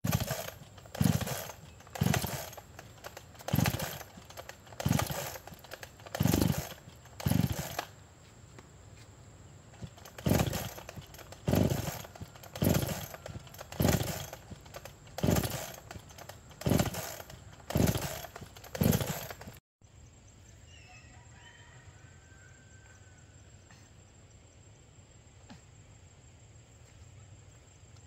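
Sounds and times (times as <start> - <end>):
chainsaw recoil starter pulls: 0.0 - 8.0, 9.7 - 19.6
bird chirps: 19.9 - 21.4.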